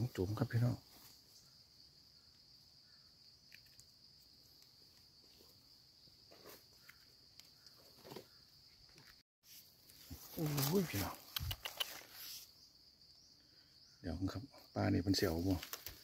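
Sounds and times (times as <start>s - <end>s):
hand rustling dry leaves: 9.9s - 11.2s.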